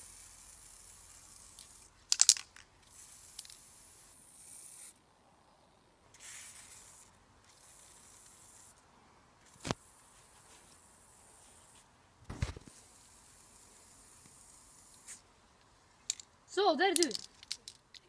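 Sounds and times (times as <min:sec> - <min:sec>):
spray can hissing: 0:00.1 - 0:01.9, 0:02.9 - 0:05.0, 0:06.2 - 0:08.8, 0:09.4 - 0:11.8, 0:12.7 - 0:15.2
rattle of sharp clicks: 0:01.5 - 0:02.7, 0:16.0 - 0:16.3, 0:17.0 - 0:18.0.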